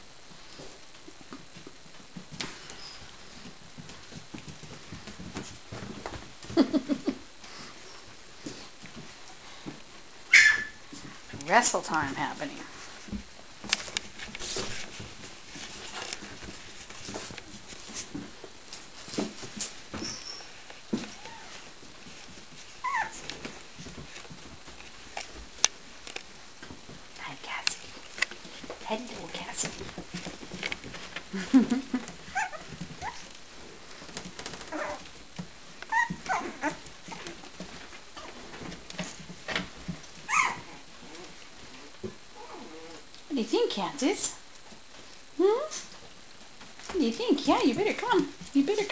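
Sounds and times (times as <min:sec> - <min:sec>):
puppies scuffling: 0:00.4 - 0:06.8, 0:07.4 - 0:43.1
puppies yelping high-pitched: 0:10.3 - 0:10.8, 0:22.8 - 0:23.2, 0:32.3 - 0:33.2, 0:35.9 - 0:36.8, 0:40.3 - 0:40.8
puppy vocal sounds: 0:22.8 - 0:23.2, 0:32.3 - 0:33.3, 0:34.6 - 0:35.0, 0:35.9 - 0:37.3, 0:40.3 - 0:41.4, 0:42.3 - 0:43.1.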